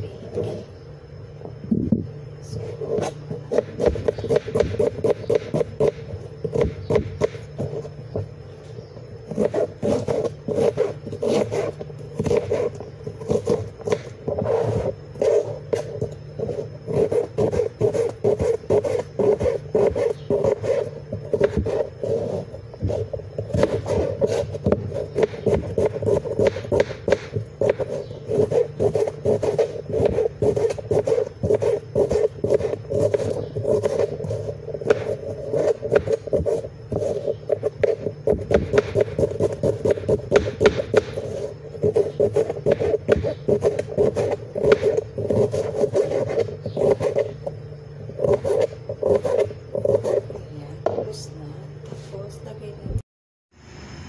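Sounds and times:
steady hum: 0.0s - 54.0s
knife chopping on cutting board: 3.0s - 7.6s, 9.3s - 14.5s, 16.9s - 21.9s, 22.9s - 47.3s, 48.2s - 50.2s.

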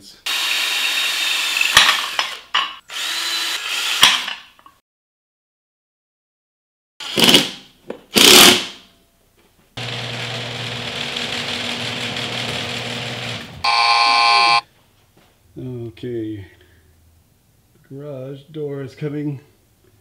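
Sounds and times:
cordless drill driving screws: 0.3s - 4.4s, 9.8s - 14.6s
steady motor sound: 9.8s - 14.6s
buzzing tone: 12.7s - 14.6s.

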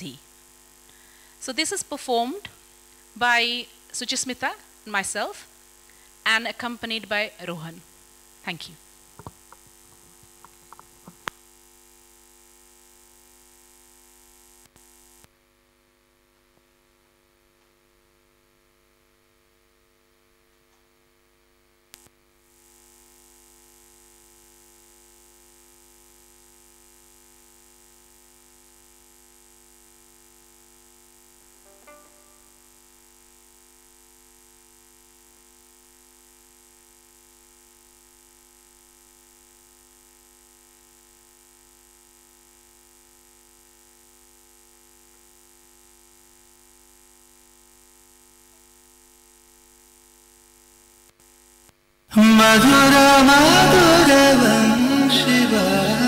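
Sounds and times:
instrumental drone: 52.2s - 56.0s.

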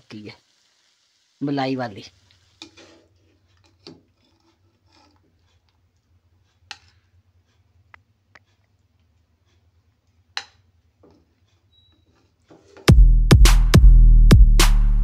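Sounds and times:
spatula scraping frying pan: 2.2s - 7.7s
spatula tapping pan and plate: 6.6s - 7.1s, 10.3s - 11.3s.

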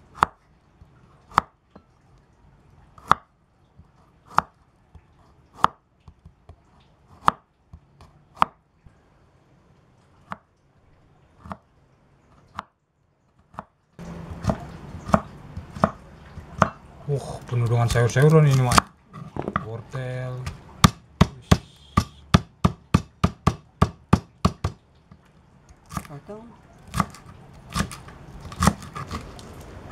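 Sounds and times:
low background noise: 0.0s - 29.9s
knife chopping on wooden board: 3.0s - 3.2s, 4.3s - 4.5s, 5.6s - 6.4s, 7.2s - 7.4s, 8.0s - 8.6s, 14.3s - 16.8s, 17.9s - 19.7s, 20.4s - 24.8s, 26.9s - 29.2s.

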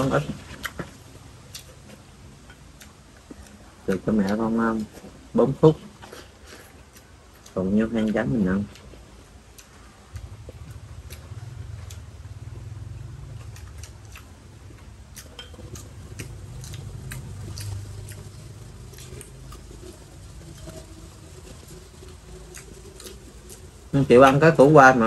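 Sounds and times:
low steady rumble: 0.0s - 25.0s
utensils tapping bowls: 15.2s - 17.8s.

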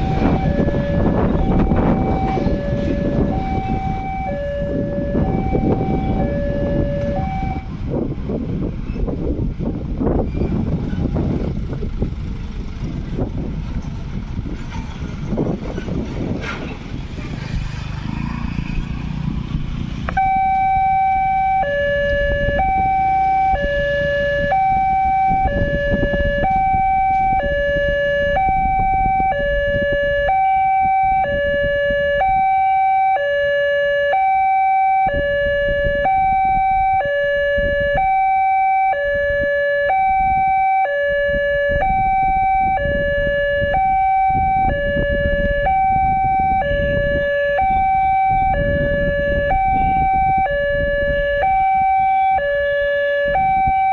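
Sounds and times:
level crossing two-tone alarm: 0.0s - 7.7s, 20.2s - 53.9s.

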